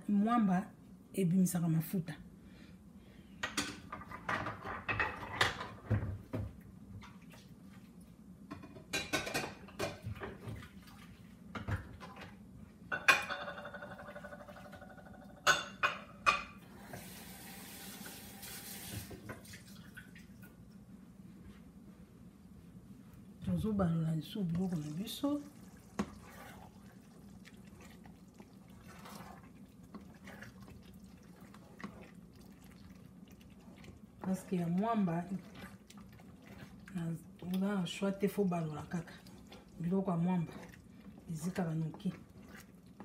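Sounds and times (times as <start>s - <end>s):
pots and dishes clinking: 8.5s - 10.4s, 12.9s - 16.6s
running water: 17.0s - 20.6s, 24.4s - 43.0s.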